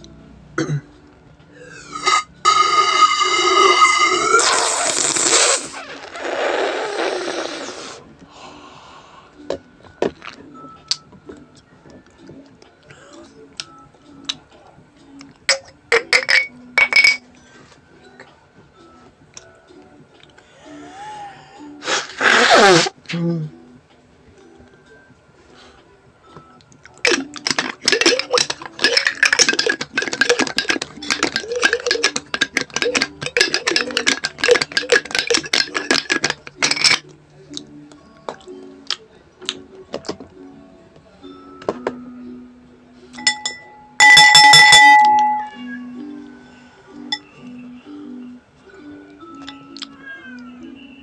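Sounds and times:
background music wavering melody: 0:00.0 - 0:04.4, 0:08.0 - 0:21.9, 0:23.0 - 0:51.0
utensil clinking on ceramic plate: 0:15.5 - 0:17.2, 0:27.1 - 0:37.0, 0:43.2 - 0:45.6.

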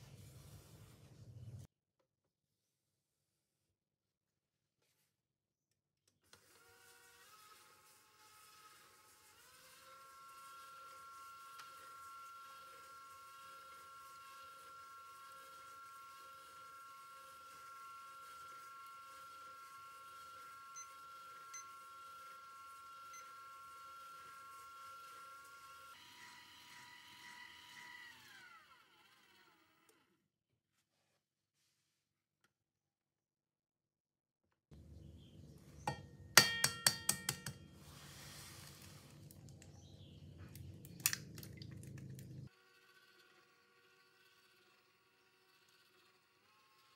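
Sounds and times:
kitchen timer beeping: 0:20.8 - 0:21.8.

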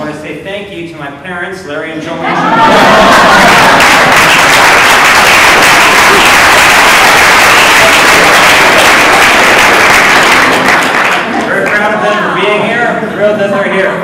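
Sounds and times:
audience applauding: 0:02.4 - 0:11.9.

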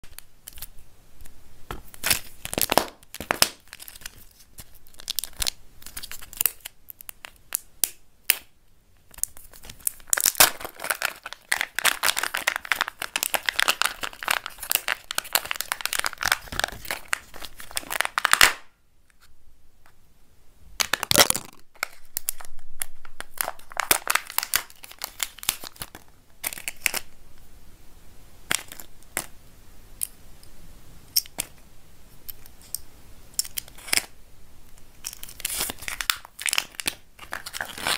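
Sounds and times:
plastic egg clicking and cracking: 0:00.1 - 0:18.7, 0:20.8 - 0:27.1, 0:28.5 - 0:29.3, 0:34.8 - 0:37.9
foil wrapper crinkling and tearing: 0:01.9 - 0:08.4, 0:09.1 - 0:18.7, 0:20.8 - 0:27.2, 0:33.4 - 0:34.2, 0:34.9 - 0:37.9.

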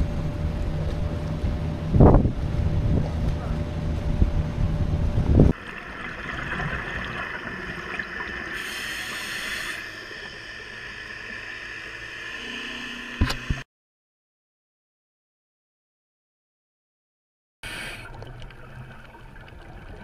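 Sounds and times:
scuba exhaust bubbles rushing: 0:05.4 - 0:11.4
underwater hiss: 0:06.9 - 0:12.8, 0:17.6 - 0:18.2.

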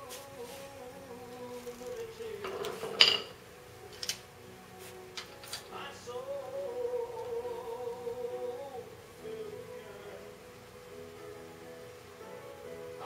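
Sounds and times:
background tune: 0:00.0 - 0:13.0
metal clanking and clinking: 0:02.4 - 0:04.2, 0:05.2 - 0:05.7.

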